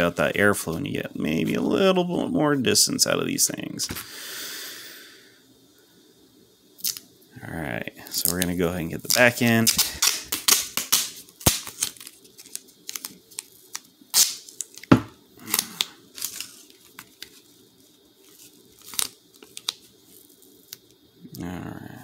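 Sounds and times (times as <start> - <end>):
tape tearing and crinkling: 8.2 - 17.5, 18.2 - 20.9.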